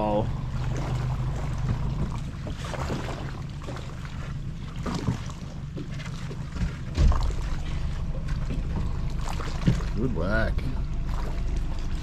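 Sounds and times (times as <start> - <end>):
outboard motor idling: 0.0 - 12.0
loud low thump: 6.6 - 7.5.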